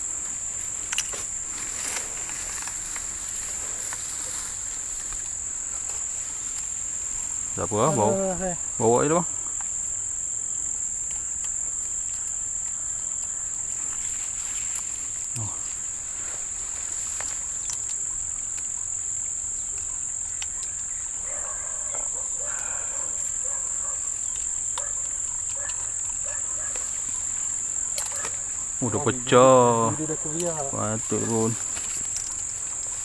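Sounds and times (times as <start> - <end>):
high-pitched insect chorus: 0.0 - 33.0
faint clicks: 17.1 - 18.7, 24.2 - 25.9, 27.9 - 28.4.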